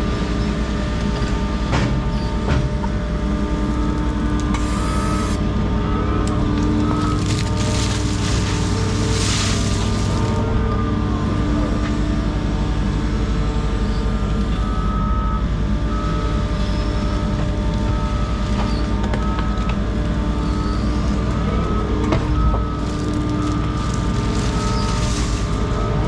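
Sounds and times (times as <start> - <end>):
diesel machinery running: 0.0 - 26.0
reversing alarm beeping: 4.6 - 12.2, 13.7 - 26.0.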